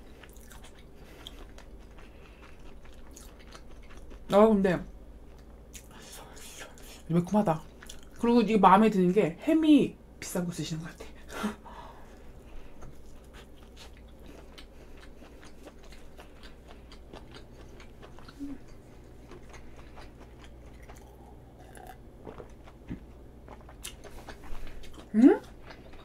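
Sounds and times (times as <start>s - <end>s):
person chewing bread: 0.0s - 4.3s, 7.7s - 8.2s, 12.0s - 26.0s.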